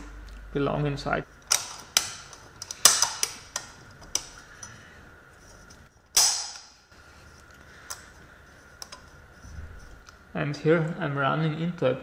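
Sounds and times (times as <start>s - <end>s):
metal parts clicking and clinking: 1.4s - 4.8s.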